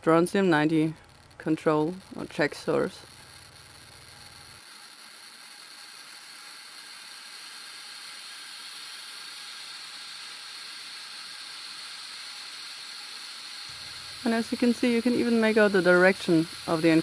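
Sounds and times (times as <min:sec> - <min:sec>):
geiger counter clicking hiss: 0:00.0 - 0:17.0.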